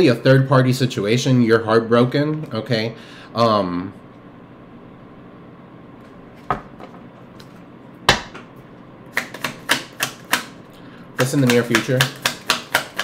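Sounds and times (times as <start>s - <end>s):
cards slapping: 9.1s - 10.6s, 11.2s - 13.0s
cards snapping in shuffle: 9.1s - 10.6s, 11.2s - 13.0s
cards tapping: 9.1s - 10.6s, 11.2s - 13.0s.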